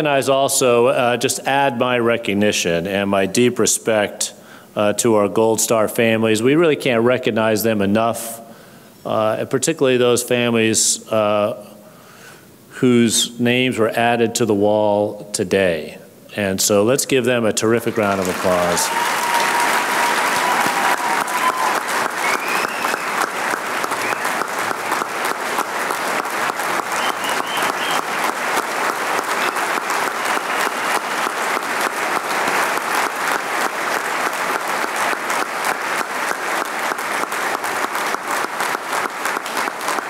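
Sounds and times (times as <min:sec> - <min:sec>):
audience applauding: 0:17.8 - 0:40.0
faint cheers: 0:18.2 - 0:23.2.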